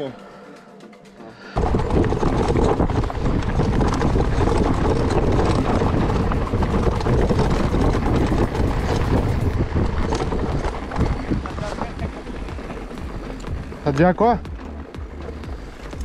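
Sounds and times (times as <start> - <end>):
bike rattling over rough trail: 1.5 - 16.0
wind rumbling on microphone: 1.6 - 16.0.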